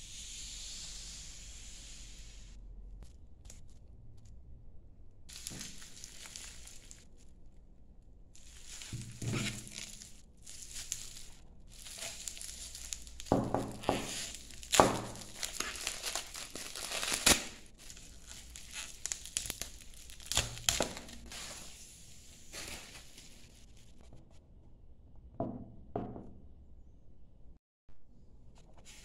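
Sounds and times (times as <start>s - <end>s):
bubble wrap cracks: 5.3s - 7.4s, 8.3s - 21.7s, 22.4s - 24.0s
bubble wrap crinkling: 5.3s - 7.6s, 8.3s - 24.0s.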